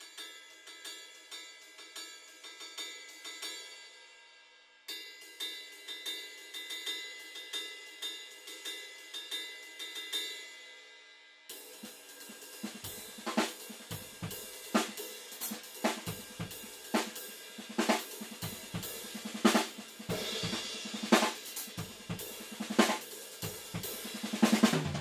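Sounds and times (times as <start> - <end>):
cymbals: 0.0 - 25.0
snare drum hits: 15.9 - 23.0
bass drum: 17.8 - 25.0.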